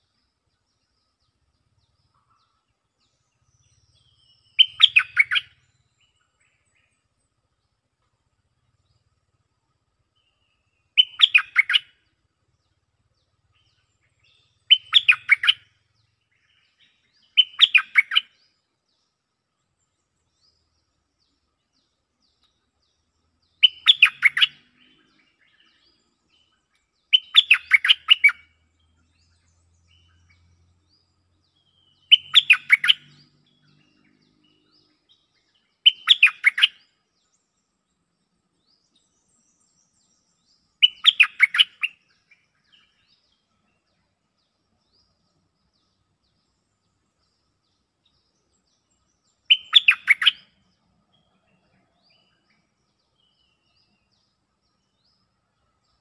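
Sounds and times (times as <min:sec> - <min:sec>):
bulbul song: 0:03.1 - 0:07.2, 0:10.1 - 0:18.6, 0:20.5 - 0:30.9, 0:31.6 - 0:37.5, 0:38.8 - 0:51.0.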